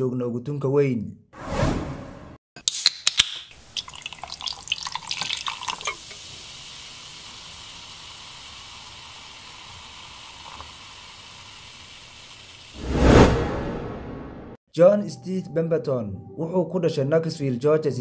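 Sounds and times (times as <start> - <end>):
drink pouring and splashing: 2.7 - 12.7
fizzing hiss of soda: 3.5 - 12.8
ice clinking in glass: 3.8 - 6.1.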